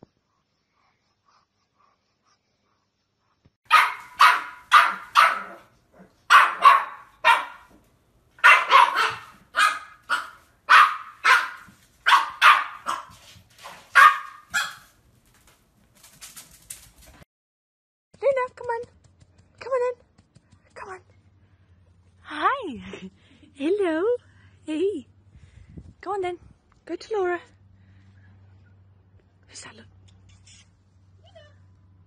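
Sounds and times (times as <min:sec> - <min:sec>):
dog barking sharply: 0:03.7 - 0:05.7, 0:06.3 - 0:07.7, 0:08.4 - 0:14.9.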